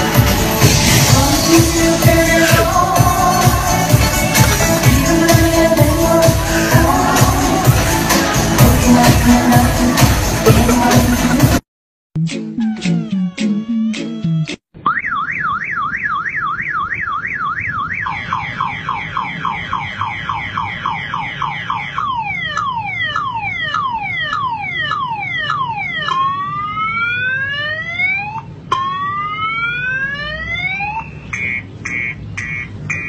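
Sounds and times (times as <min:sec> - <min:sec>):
car alarm siren: 0:12.6 - 0:33.0.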